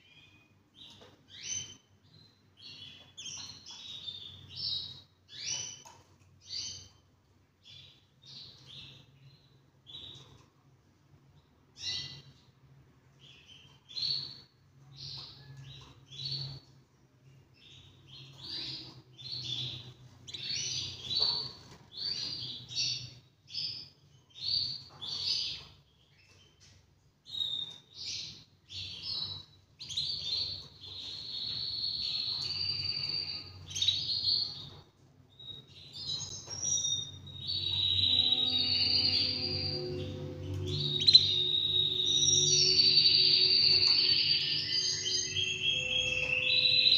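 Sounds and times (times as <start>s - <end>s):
canary singing: 0.0s - 10.6s, 11.6s - 46.9s
low steady hum: 37.2s - 46.9s.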